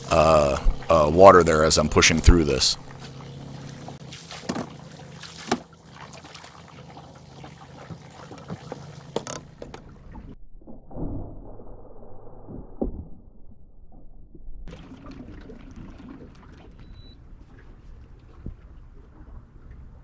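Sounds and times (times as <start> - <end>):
steady low hum: 0.0 - 10.4
water trickling and splashing: 0.0 - 10.4, 14.7 - 20.0.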